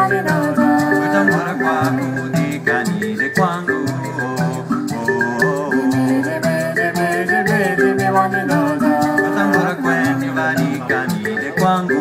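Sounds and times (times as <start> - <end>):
gourd shakers rattling: 0.0 - 12.0
mbira playing: 0.0 - 12.0
woman singing: 0.0 - 12.0.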